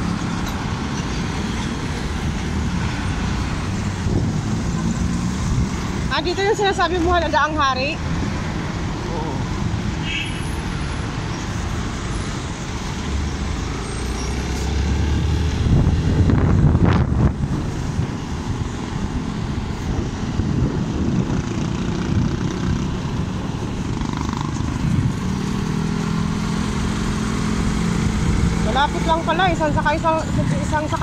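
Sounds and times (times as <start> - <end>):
wind rushing over microphone: 0.0 - 6.2, 14.7 - 31.0
road and engine noise: 0.0 - 31.0
steady engine hum: 11.5 - 31.0.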